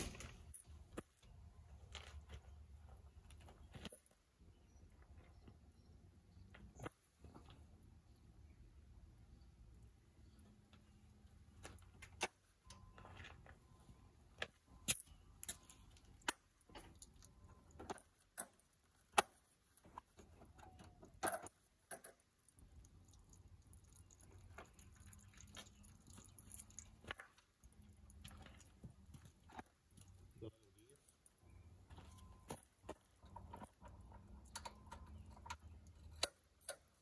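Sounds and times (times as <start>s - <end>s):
hand tools clinking and knocking: 14.4s - 22.4s, 31.0s - 37.0s.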